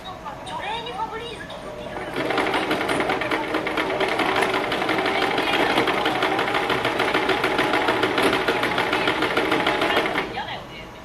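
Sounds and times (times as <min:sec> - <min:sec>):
sewing machine stitching: 0:01.9 - 0:10.4.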